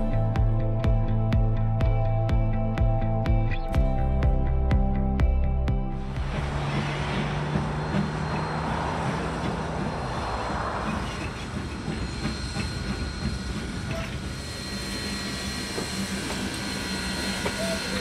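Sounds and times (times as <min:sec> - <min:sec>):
steady low hum: 0:00.0 - 0:18.0
steam locomotive hissing steam: 0:06.4 - 0:18.0.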